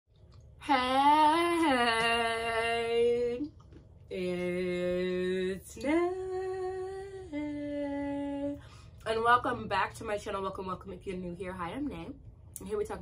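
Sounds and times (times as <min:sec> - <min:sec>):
woman singing long notes: 0:00.6 - 0:03.5, 0:04.1 - 0:08.6
woman breathing: 0:08.6 - 0:09.0.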